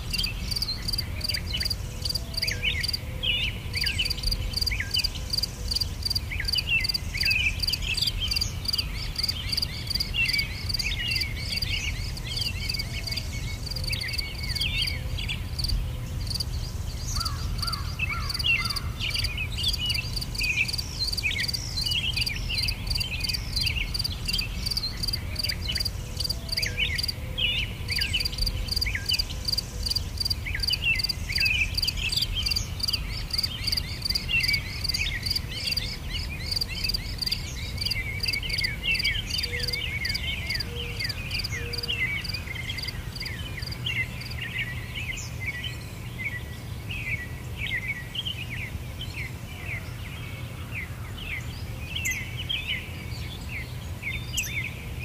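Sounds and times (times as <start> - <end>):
insects chirring: 0.0 - 3.0, 3.8 - 14.9, 15.5 - 16.5, 17.1 - 27.2, 27.9 - 41.5
bird chirps: 0.0 - 45.7.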